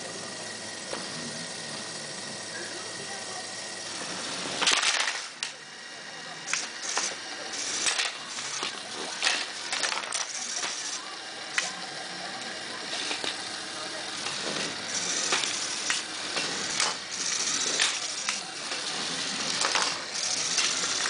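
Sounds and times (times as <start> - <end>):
motor whine: 0.0 - 21.0
blade crashing into bricks: 4.6 - 5.6, 6.5 - 11.7, 14.2 - 21.0
plastic clacks and rattles: 4.6 - 5.6, 7.8 - 10.8.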